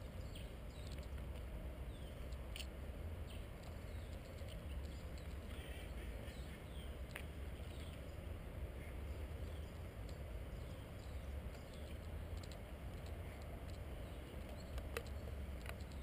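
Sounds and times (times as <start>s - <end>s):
birds chirping: 0.0s - 16.0s
sharp clicks: 11.4s - 16.0s.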